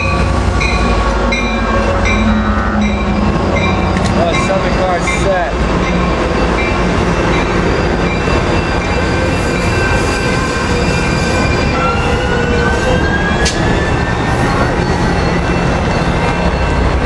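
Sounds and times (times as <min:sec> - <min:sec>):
train wheels rumbling on rail: 0:00.0 - 0:17.0
sharp click: 0:13.4 - 0:13.6.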